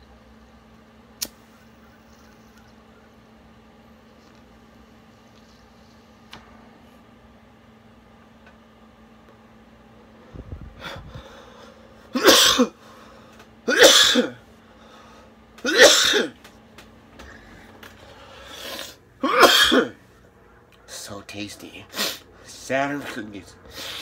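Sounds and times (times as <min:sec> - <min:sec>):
man coughing: 0:12.1 - 0:12.8, 0:13.7 - 0:14.4, 0:15.6 - 0:16.4, 0:19.2 - 0:20.0.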